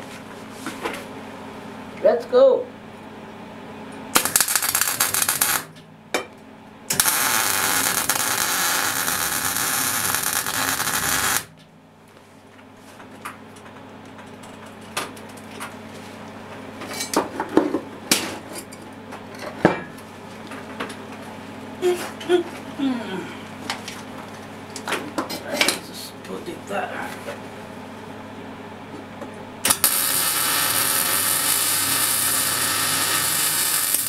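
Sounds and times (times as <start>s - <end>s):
welder arc crackling: 4.1s - 5.8s, 6.9s - 11.6s, 29.6s - 34.0s.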